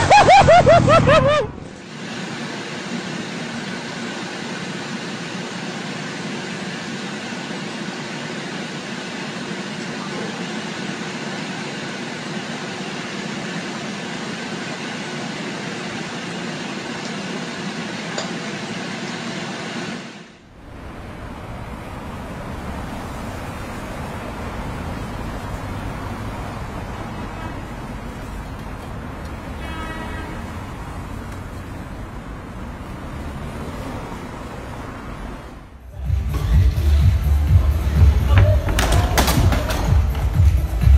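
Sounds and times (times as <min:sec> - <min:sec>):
street traffic rumble: 0:00.0 - 0:40.9
road noise inside a car: 0:20.5 - 0:36.1.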